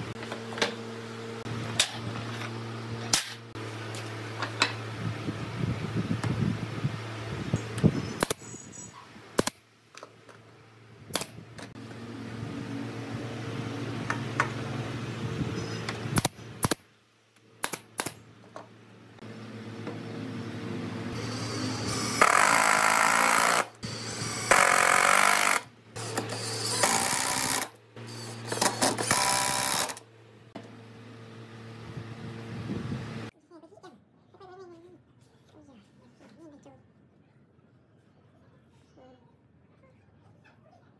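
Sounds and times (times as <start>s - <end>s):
steady motor hum: 0.0s - 8.6s, 10.4s - 16.8s, 18.2s - 33.3s
electric power tool running: 19.2s - 30.1s.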